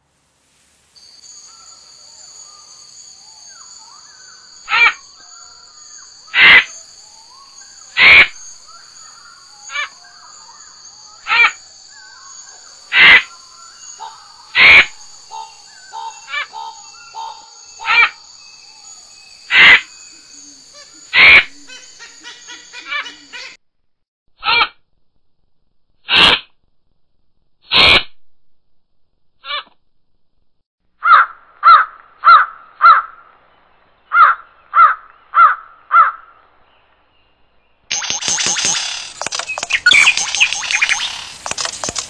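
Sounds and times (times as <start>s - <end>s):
insect drone: 0.7s - 23.5s, 32.8s - 42.0s.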